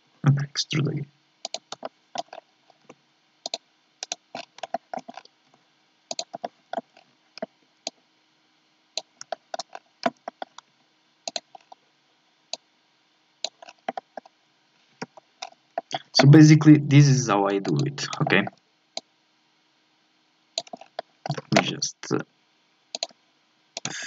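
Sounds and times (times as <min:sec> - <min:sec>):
mouse and keyboard clicking: 0:01.4 - 0:02.4, 0:03.5 - 0:05.2, 0:06.1 - 0:06.9, 0:09.0 - 0:10.6, 0:11.3 - 0:11.7, 0:20.6 - 0:21.7, 0:23.0 - 0:23.2.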